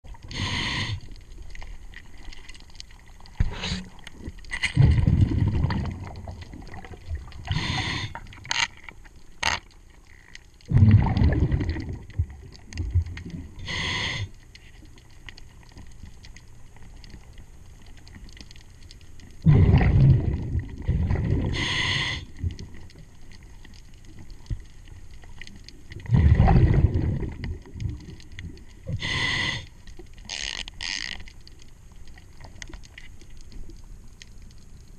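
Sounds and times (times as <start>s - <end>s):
exhaled bubbles rumbling: 0.0s - 8.5s, 10.6s - 14.0s, 19.2s - 29.3s
regulator inhale hiss: 0.2s - 1.2s, 3.4s - 4.0s, 7.5s - 8.3s, 13.6s - 14.4s, 21.5s - 22.4s, 28.9s - 29.8s.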